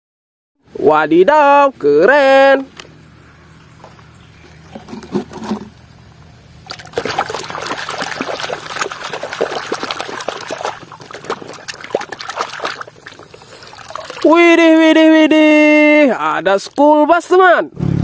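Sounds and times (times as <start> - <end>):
water splashing and sloshing: 6.6 - 15.1.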